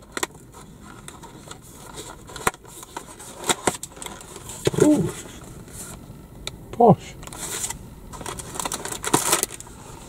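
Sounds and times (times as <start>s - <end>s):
cardboard cracking and scraping: 0.0s - 5.8s, 7.3s - 10.0s
short voice sound: 4.7s - 5.2s.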